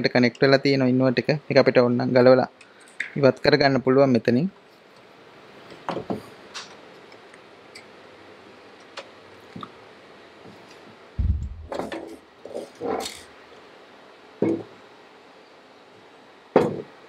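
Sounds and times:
dull thump: 11.2s - 12.0s
sheet metal knocks and rattles: 11.2s - 12.2s.

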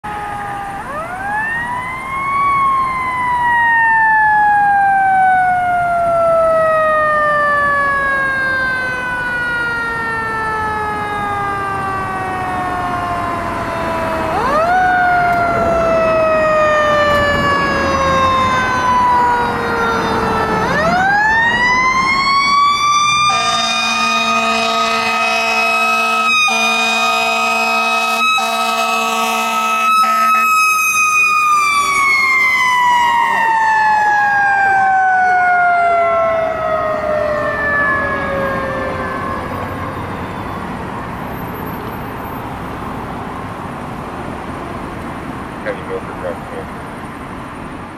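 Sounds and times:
mechanical siren wailing: 0.0s - 42.2s
air horns blasting: 23.2s - 31.8s.

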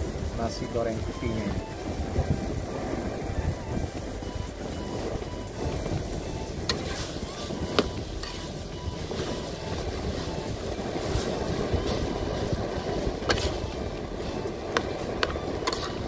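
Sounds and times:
low background rumble: 0.0s - 16.0s
spatula stirring rice in a wok: 5.6s - 16.0s.

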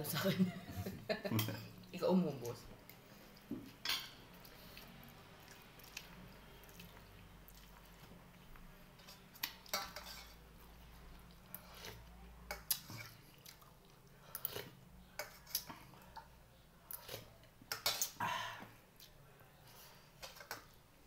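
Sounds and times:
cutlery clinking on plates: 3.8s - 4.2s, 9.7s - 10.4s
chewing: 4.3s - 10.0s, 10.9s - 18.2s.

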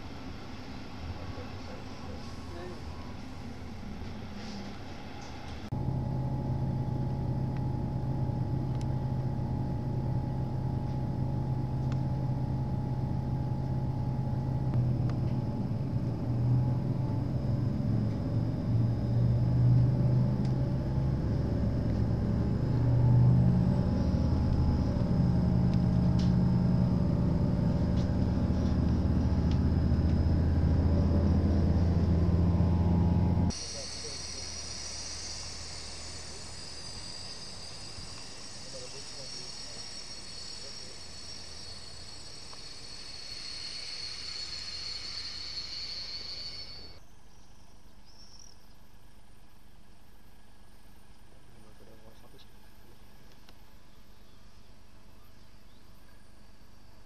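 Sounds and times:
faint outdoor background: 0.0s - 57.0s
low rumble: 2.8s - 47.0s
diesel engine droning: 5.7s - 47.0s.

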